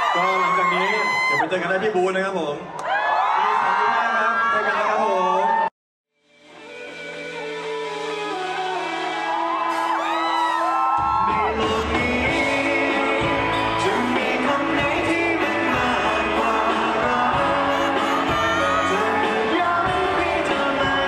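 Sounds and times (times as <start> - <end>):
pop-rock band with guitar and bass: 6.6 - 21.0
person singing: 11.2 - 21.0.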